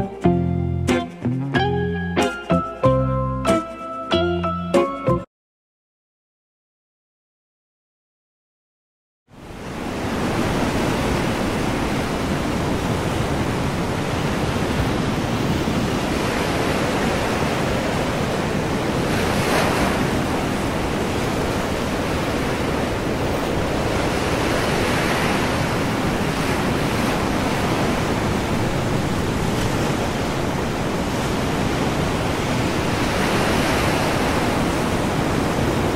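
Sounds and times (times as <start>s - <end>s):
waves washing onto beach: 9.4s - 35.9s
wind rumble on microphone: 9.4s - 35.9s.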